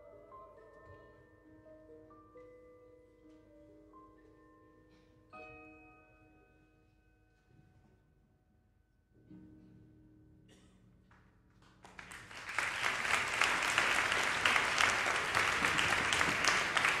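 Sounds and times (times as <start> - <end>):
audience applause: 11.8 - 17.0.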